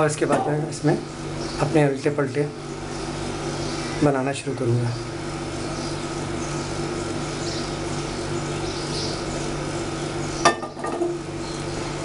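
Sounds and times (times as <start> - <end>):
steady hum: 0.0 - 12.0
frying pan clanking on metal: 10.4 - 11.2.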